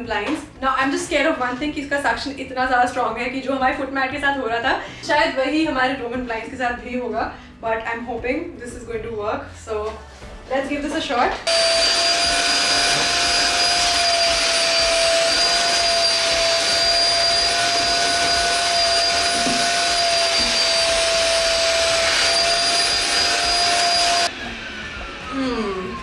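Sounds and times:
vacuum cleaner whining: 11.5s - 26.0s.

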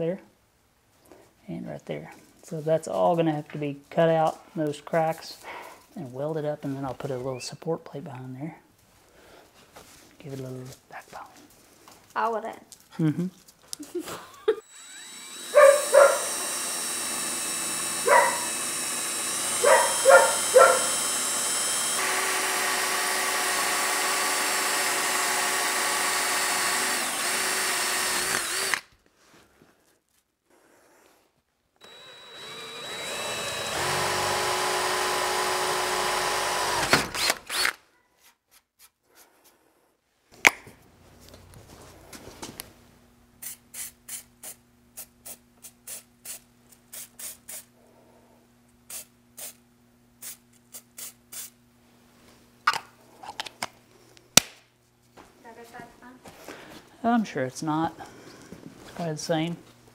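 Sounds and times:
cordless drill boring into steel: 14.6s - 28.9s, 31.8s - 37.8s
drill clicks: 14.6s - 28.9s, 31.8s - 37.8s
aerosol can spraying: 43.4s - 47.7s, 48.9s - 49.6s, 50.2s - 51.6s.

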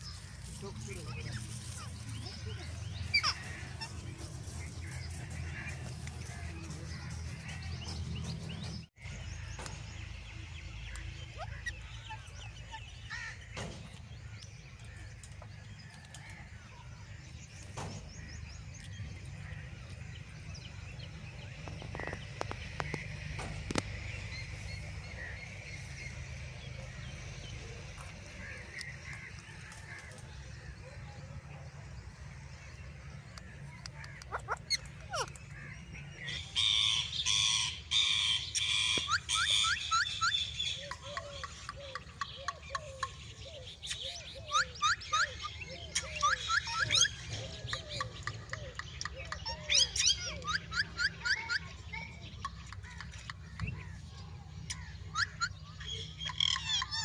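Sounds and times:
parakeets chirping and screeching: 0.0s - 9.5s, 32.3s - 54.0s, 54.6s - 57.0s.

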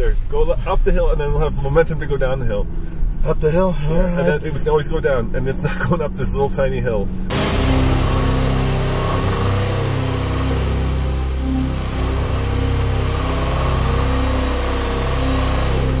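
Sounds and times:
car engine revving under load: 0.0s - 16.0s.

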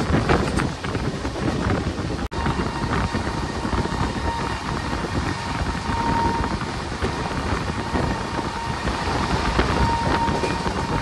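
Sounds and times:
train wheels rumbling on rail: 0.0s - 11.0s
wind buffeting microphone: 0.0s - 11.0s
thin high whine: 2.3s - 11.0s.

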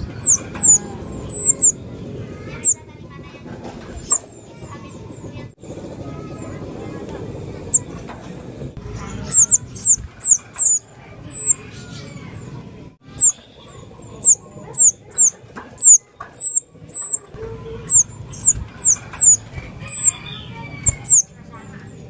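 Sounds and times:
bird calling high notes: 0.0s - 2.8s, 9.0s - 21.4s.

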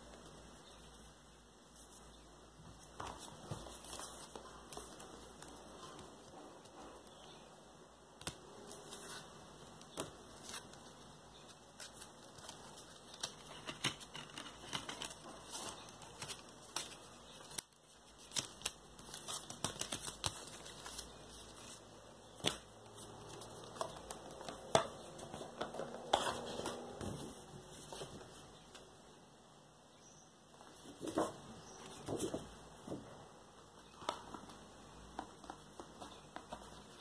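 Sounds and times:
card and paper rustling: 8.4s - 28.8s.

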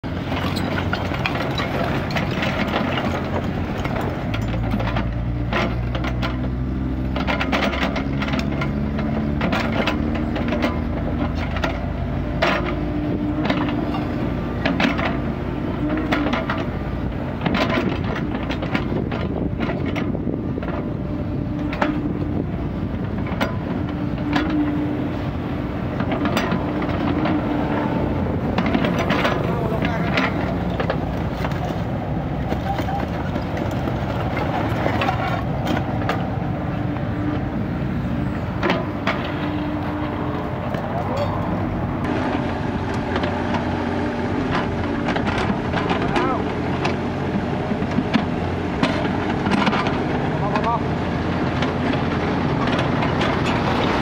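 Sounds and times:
excavator diesel engine: 0.0s - 54.0s
bucket scraping dirt and stones: 25.6s - 47.1s.

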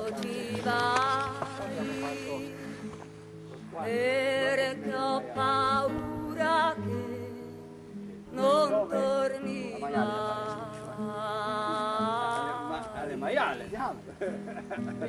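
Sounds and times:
person singing with vibrato: 0.0s - 2.9s, 3.8s - 7.6s, 8.3s - 13.2s.

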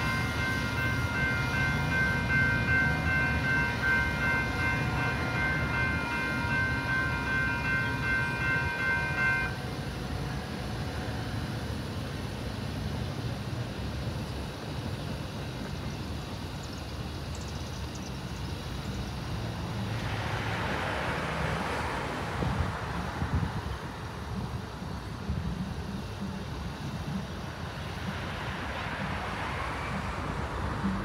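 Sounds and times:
cars passing: 0.0s - 13.0s, 18.6s - 31.0s
wind on microphone: 22.2s - 28.3s.

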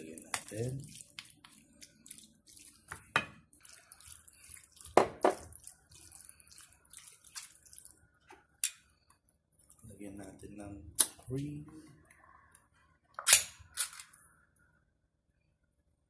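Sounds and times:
wet squelching and scraping: 0.0s - 9.9s.

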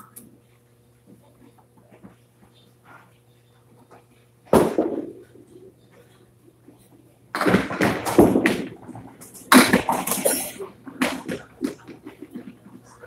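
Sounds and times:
bowling pins crashing: 4.5s - 5.7s, 7.4s - 12.6s.

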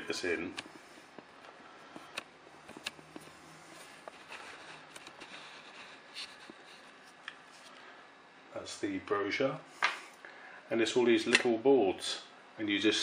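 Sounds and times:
paper card rustling: 2.1s - 7.8s.

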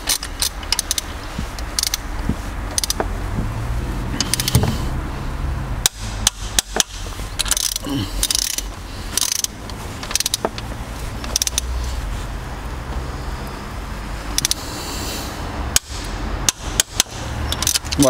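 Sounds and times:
ratchet clicks: 0.0s - 3.1s, 4.2s - 4.8s, 5.8s - 11.7s, 14.3s - 14.7s, 15.7s - 18.0s
sharp metallic clicks: 0.0s - 3.6s, 4.2s - 4.8s, 5.8s - 11.8s, 14.2s - 14.8s, 15.7s - 18.0s
low steady hum: 0.0s - 18.0s.

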